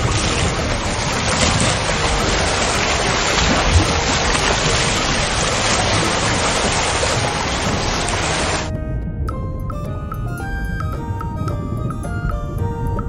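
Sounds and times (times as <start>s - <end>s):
water rushing over rocks: 0.0s - 8.7s.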